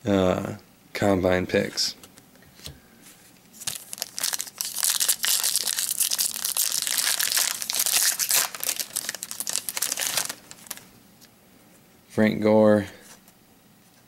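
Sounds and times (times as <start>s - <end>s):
foil wrapper crinkling and tearing: 3.6s - 10.9s.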